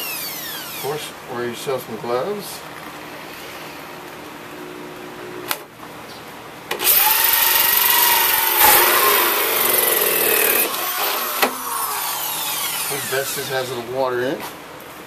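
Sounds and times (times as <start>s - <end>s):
drill with hole saw cutting pipe: 0.0s - 1.0s, 6.8s - 13.5s
fan running steadily: 0.0s - 15.0s.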